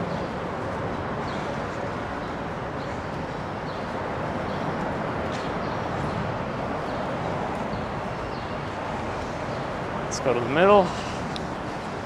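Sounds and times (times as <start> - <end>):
urban traffic noise: 0.0 - 12.0.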